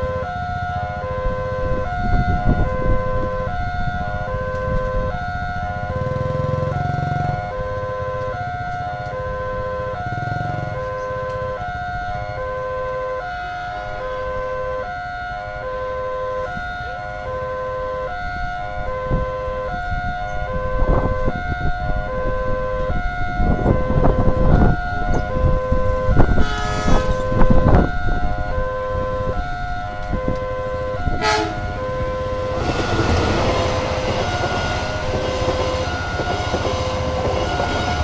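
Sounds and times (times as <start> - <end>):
electronic two-tone alarm: 23.0 - 38.0.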